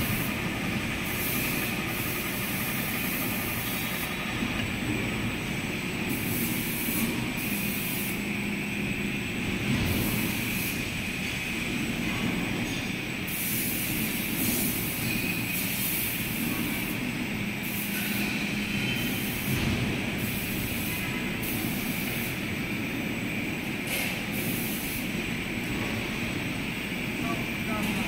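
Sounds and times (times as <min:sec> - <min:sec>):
machinery high whine: 0:00.0 - 0:11.5
machinery low hum: 0:00.0 - 0:13.2.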